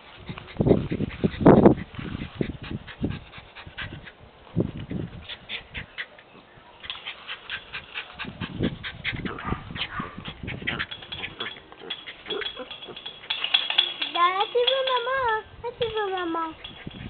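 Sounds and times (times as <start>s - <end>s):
small dogs whimpering and yipping: 4.8s - 13.1s.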